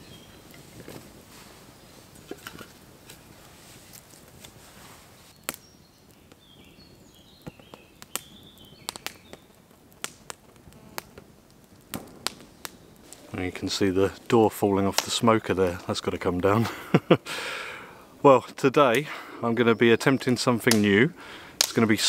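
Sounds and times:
bird singing: 0:00.0 - 0:00.5, 0:05.3 - 0:09.6, 0:18.8 - 0:21.0
campfire crackling and popping: 0:00.0 - 0:22.0.

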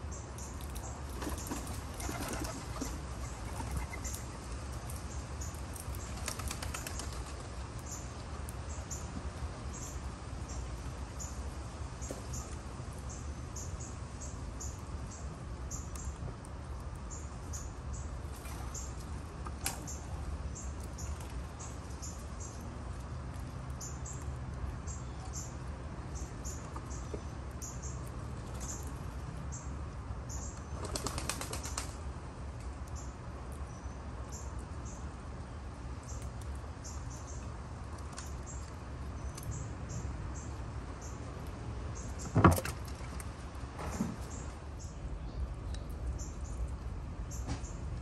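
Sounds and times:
dove wings flapping: 0:01.1 - 0:04.3, 0:06.1 - 0:07.5, 0:30.8 - 0:32.0.

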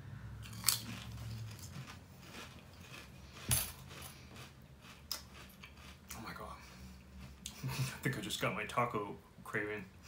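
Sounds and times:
chips being chewed: 0:00.4 - 0:06.3.

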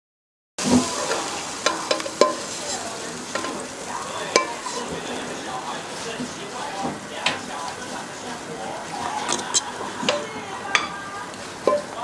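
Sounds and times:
food sizzling in a frying pan: 0:00.6 - 0:12.0
spatula scraping a pan: 0:00.6 - 0:12.0
spatula clacking against pan: 0:01.0 - 0:02.5, 0:04.3 - 0:05.1.

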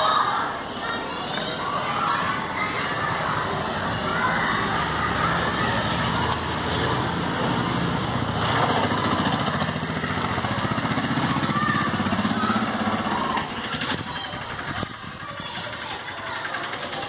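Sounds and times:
children shouting: 0:00.0 - 0:17.0
small engine running: 0:03.5 - 0:17.0.

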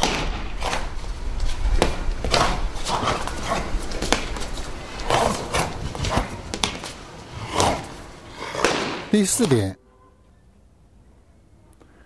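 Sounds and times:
jacket swishing and snapping: 0:00.6 - 0:09.7
feet stamping on stone: 0:01.8 - 0:07.0.

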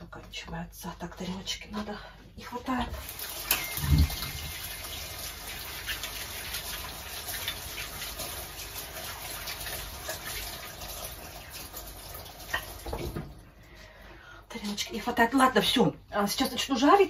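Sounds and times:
tap running into a sink: 0:02.9 - 0:05.0, 0:12.1 - 0:13.4
dishes clinking: 0:03.4 - 0:04.4.

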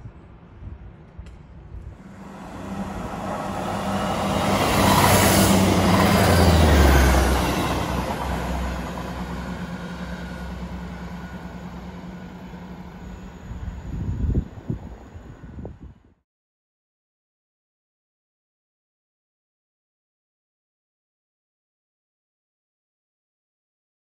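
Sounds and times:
train engine drone: 0:00.0 - 0:16.2
wheels rumbling on rails: 0:01.8 - 0:16.0.

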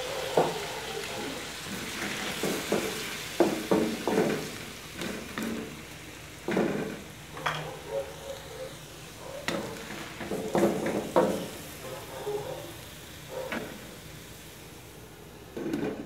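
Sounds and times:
food sizzling in a pan: 0:00.0 - 0:16.0
wooden spatula scraping a wok: 0:01.6 - 0:05.9, 0:06.5 - 0:07.1, 0:09.4 - 0:12.0.

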